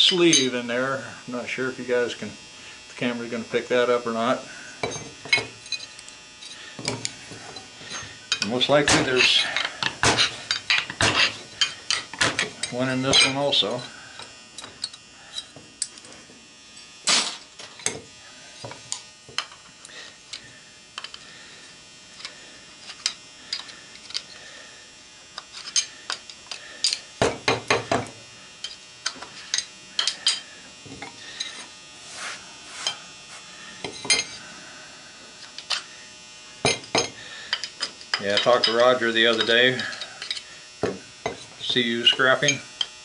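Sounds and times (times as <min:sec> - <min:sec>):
tool clinking on metal: 0:06.8 - 0:13.9, 0:36.7 - 0:42.9
screwdriver scraping metal: 0:07.9 - 0:16.0.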